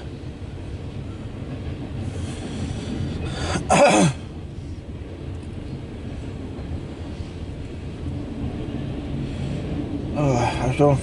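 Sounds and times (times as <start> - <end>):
steady low rumble: 0.0 - 11.0
person coughing loudly: 3.6 - 4.2.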